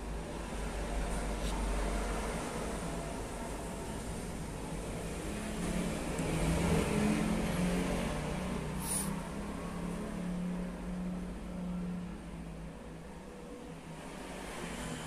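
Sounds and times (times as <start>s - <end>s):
brief high hiss: 8.8s - 9.2s.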